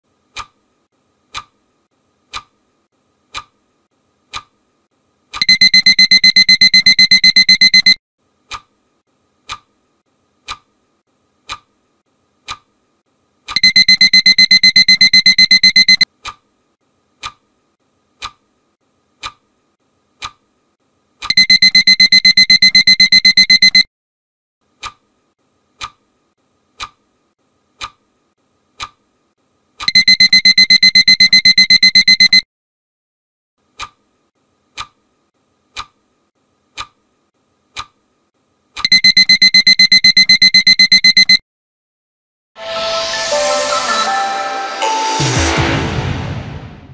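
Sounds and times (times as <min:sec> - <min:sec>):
pulsing alarm clock beep: 0:05.4 - 0:08.0, 0:13.6 - 0:16.1, 0:21.3 - 0:23.9, 0:29.9 - 0:32.5, 0:38.8 - 0:41.4.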